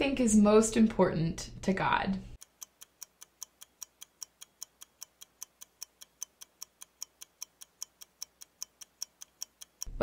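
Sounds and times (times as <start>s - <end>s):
fast ticking clock: 2.4s - 9.9s.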